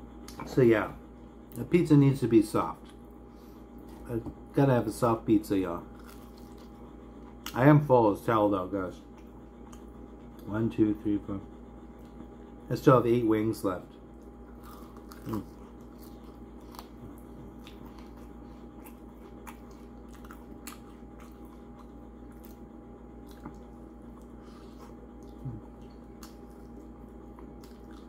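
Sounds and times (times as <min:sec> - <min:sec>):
steady background hum: 0:00.0 - 0:28.0
chewing and biting food: 0:05.9 - 0:07.6, 0:13.9 - 0:28.0.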